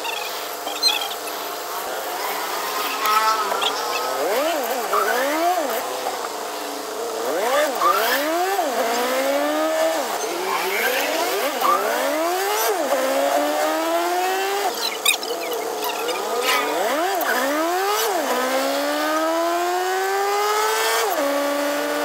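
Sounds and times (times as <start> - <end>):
engine accelerating through gears: 1.4 - 22.0.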